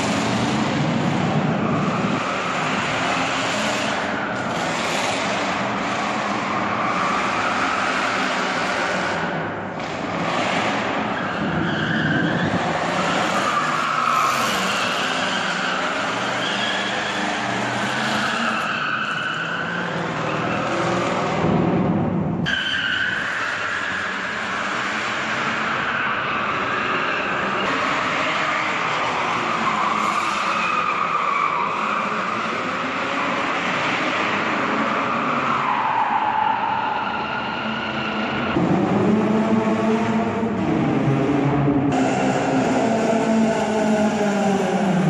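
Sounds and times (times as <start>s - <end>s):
car engine revving: 0.0s - 22.2s, 36.6s - 45.0s.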